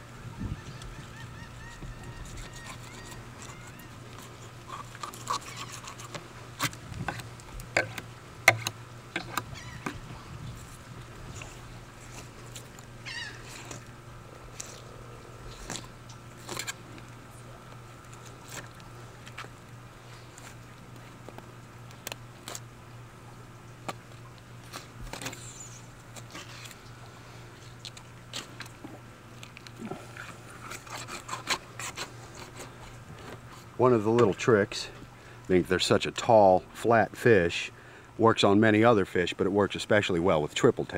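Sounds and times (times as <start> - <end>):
faint steady hum: 0.0 - 40.9
knife cutting along fish backbone: 2.1 - 9.4, 30.6 - 33.4
knife clicks and scrapes: 2.3 - 9.4.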